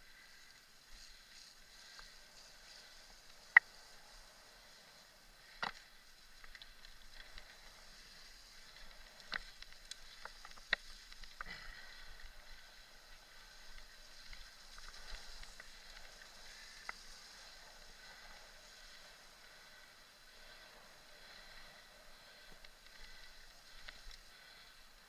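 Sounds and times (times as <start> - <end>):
bike tyres hissing on dirt: 0.0 - 25.0
bike clicks and knocks over bumps: 1.0 - 25.0.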